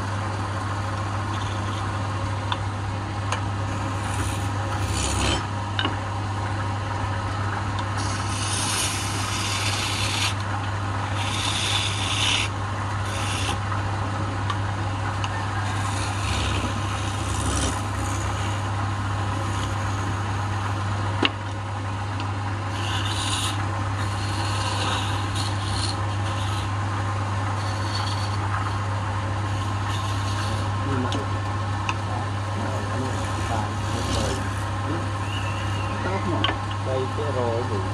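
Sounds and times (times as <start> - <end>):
lathe motor hum: 0.0 - 37.9
tool scraping spinning wood: 1.2 - 2.0, 3.6 - 5.5, 7.8 - 13.7, 15.0 - 21.4, 22.2 - 31.4, 32.1 - 37.8.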